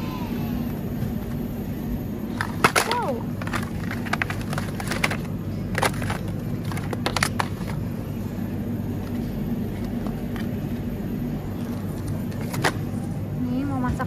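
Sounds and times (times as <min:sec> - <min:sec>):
refrigerator hum: 0:00.0 - 0:14.0
plastic trays clattering into basket: 0:02.3 - 0:07.8, 0:11.7 - 0:13.0.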